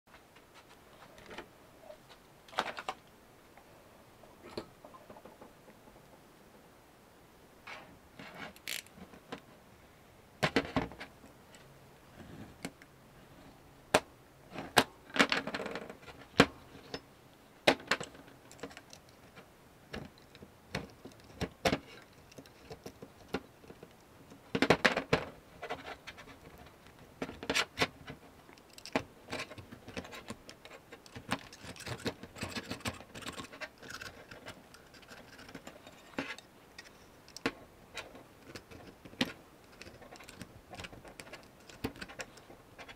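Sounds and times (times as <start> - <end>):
tape scraping and rustling: 7.7 - 9.1, 27.3 - 42.9
tools clicking and knocking on metal: 19.9 - 25.9, 27.2 - 42.9.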